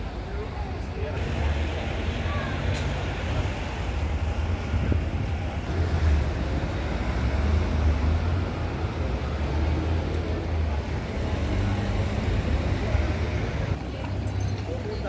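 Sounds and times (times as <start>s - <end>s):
road traffic hum: 0.0s - 15.0s
wind buffeting microphone: 1.2s - 8.7s.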